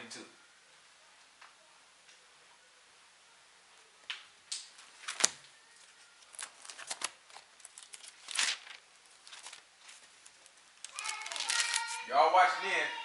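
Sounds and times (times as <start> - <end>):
plastic bottle crinkling: 6.2 - 12.0.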